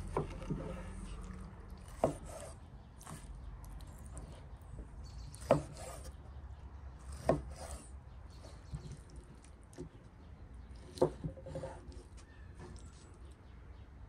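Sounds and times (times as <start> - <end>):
knife slicing meat: 0.0 - 3.3, 5.3 - 6.2, 7.0 - 8.8.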